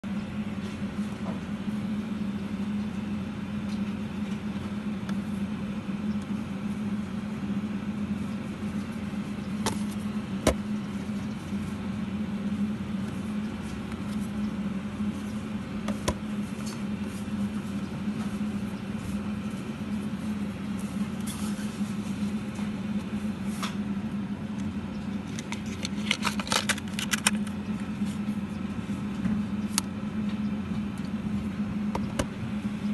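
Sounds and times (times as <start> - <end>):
steady low hum: 0.0 - 32.9
boxes clicking as handled: 25.3 - 27.5.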